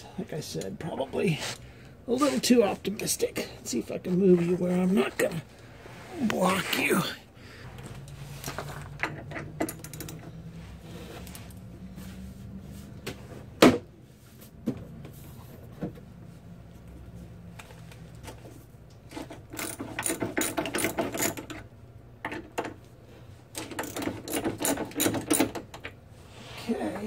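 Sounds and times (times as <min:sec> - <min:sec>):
hand ratchet clicking: 0:19.6 - 0:21.6, 0:23.6 - 0:25.6.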